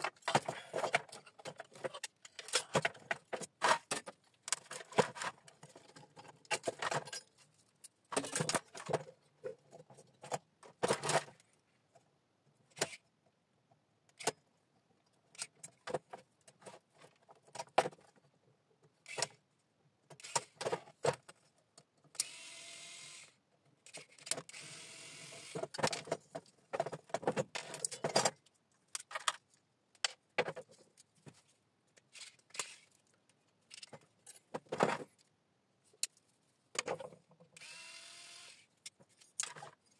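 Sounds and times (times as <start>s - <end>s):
cordless electric screwdriver running: 22.2s - 23.4s, 24.5s - 25.6s, 37.6s - 38.6s.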